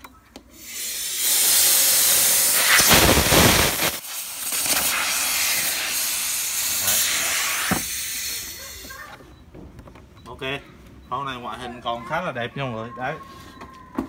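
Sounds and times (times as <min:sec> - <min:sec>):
compressed air hissing: 0:00.6 - 0:09.0.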